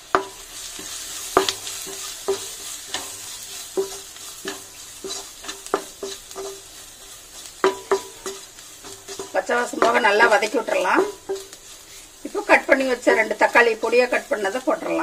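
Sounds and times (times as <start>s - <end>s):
oil sizzling: 0.0s - 15.0s
wooden spatula scraping a pan: 0.0s - 15.0s.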